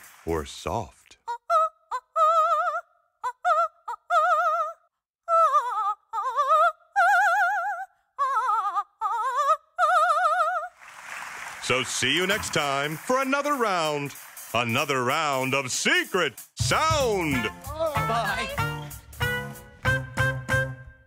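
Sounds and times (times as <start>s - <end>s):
woman singing opera unaccompanied: 1.3s - 10.7s.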